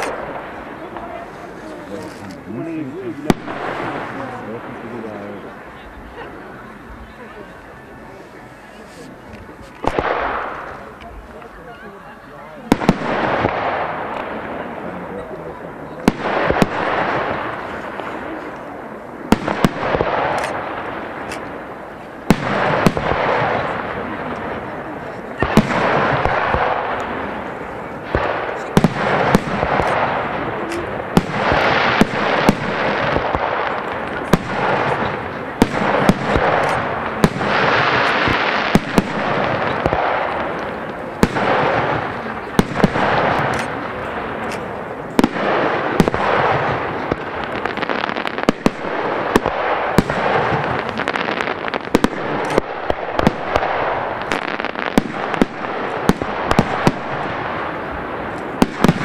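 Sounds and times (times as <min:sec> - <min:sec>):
fireworks bangs: 0:00.0 - 0:59.0.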